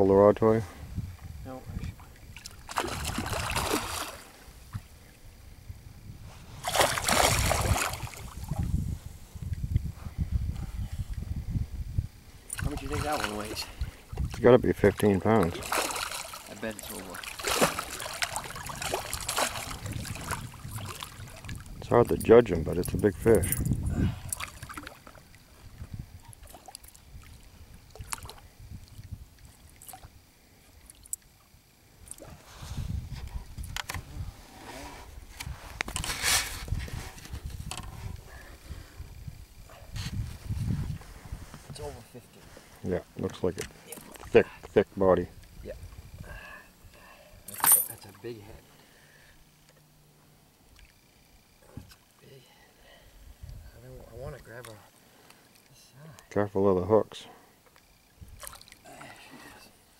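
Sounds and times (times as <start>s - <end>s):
water lapping against boat: 1.8s - 4.5s, 6.5s - 8.7s, 12.5s - 21.8s, 23.9s - 31.3s, 57.8s - 59.5s
fish thrashing and splashing: 2.4s - 4.3s, 6.6s - 8.6s, 15.4s - 21.7s.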